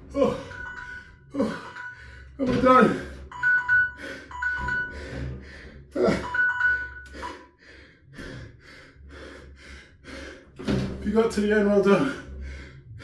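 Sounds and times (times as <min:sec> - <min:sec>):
person groaning: 0:00.0 - 0:00.6, 0:05.9 - 0:06.3
heavy rhythmic panting: 0:00.0 - 0:10.8, 0:11.9 - 0:13.0
two-tone timer beeps: 0:00.3 - 0:02.4, 0:03.2 - 0:05.1, 0:06.0 - 0:07.5.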